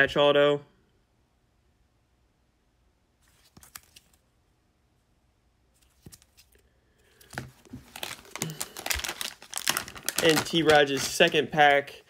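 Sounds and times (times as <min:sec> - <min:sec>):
plastic packaging crinkling: 0:07.2 - 0:11.9.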